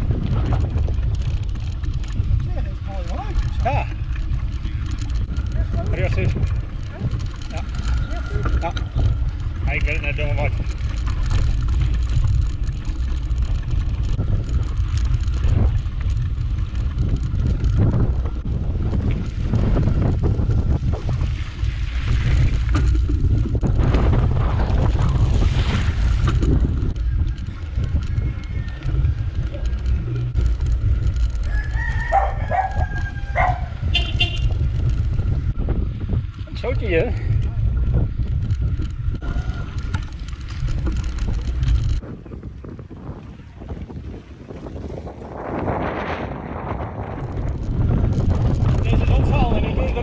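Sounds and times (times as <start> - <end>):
bike tyre noise: 0.0 - 50.0
wind buffeting microphone: 0.0 - 50.0
bike knocking over bumps: 22.0 - 35.6
rooster crowing: 31.4 - 33.8.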